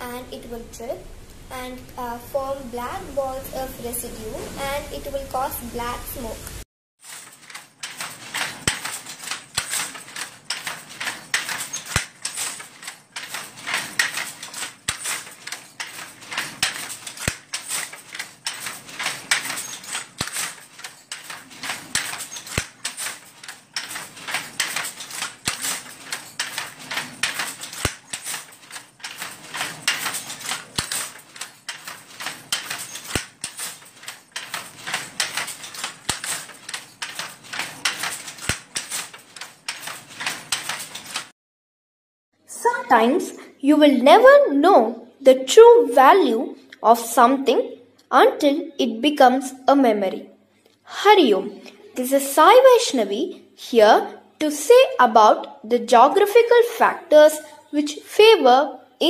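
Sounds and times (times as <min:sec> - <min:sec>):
wooden handloom clattering: 0:07.0 - 0:41.4.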